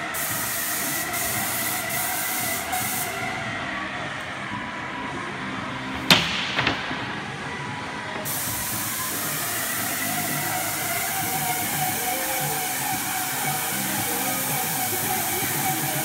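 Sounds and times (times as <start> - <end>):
paint sprayer hissing: 0.0 - 3.4, 8.2 - 16.0.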